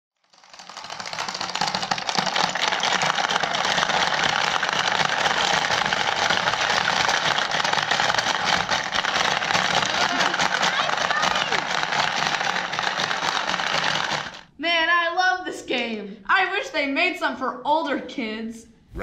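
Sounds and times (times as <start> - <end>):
marbles rattling: 0.2 - 14.5.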